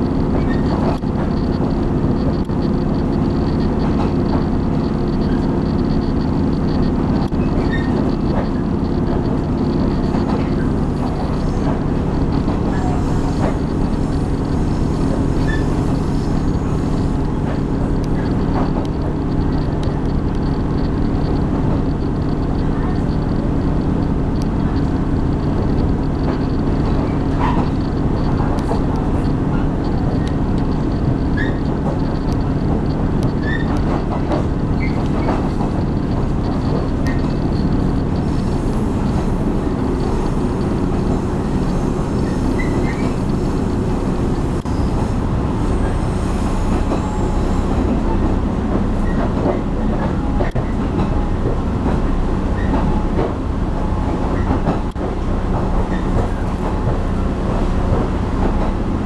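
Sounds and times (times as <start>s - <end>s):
low engine hum: 0.0s - 59.0s
train wheels rumbling on rail: 0.0s - 59.0s
faint squeaks: 2.6s - 19.6s, 36.4s - 48.3s.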